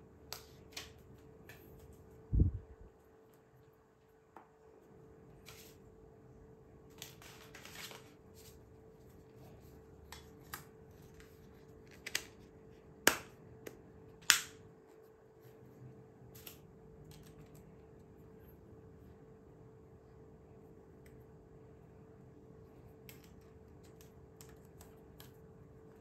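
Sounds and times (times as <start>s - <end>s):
faint steady hum: 0.0s - 26.0s
sharp snaps: 13.0s - 14.6s.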